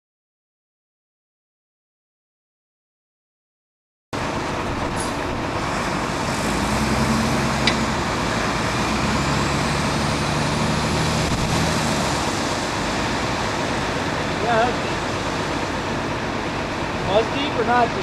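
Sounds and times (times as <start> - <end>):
road and tyre noise: 4.2 - 18.0
truck engine running: 4.2 - 18.0.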